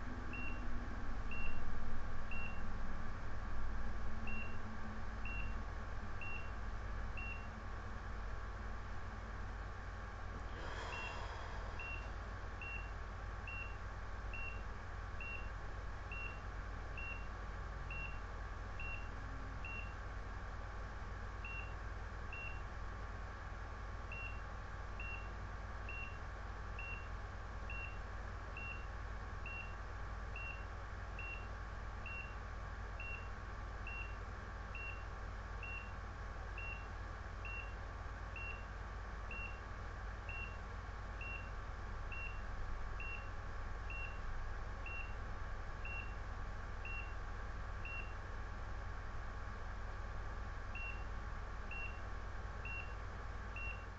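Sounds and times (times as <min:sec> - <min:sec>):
electrical hum: 0:00.0 - 0:53.9
ecg monitor beeping: 0:04.3 - 0:04.6, 0:05.2 - 0:05.6, 0:11.8 - 0:13.8, 0:51.7 - 0:52.0, 0:52.6 - 0:53.0, 0:53.6 - 0:53.9.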